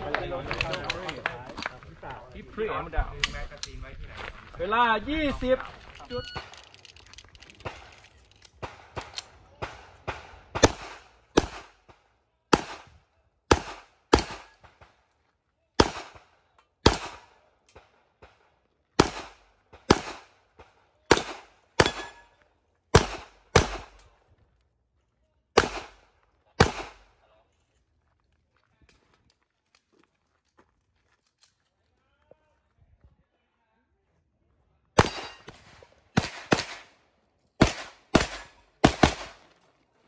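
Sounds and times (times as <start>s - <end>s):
pistol shots: 7.6s - 12.9s, 13.5s - 14.9s, 15.8s - 18.4s, 19.0s - 22.3s, 22.9s - 24.1s, 25.6s - 27.1s, 35.0s - 37.0s, 37.6s - 39.4s.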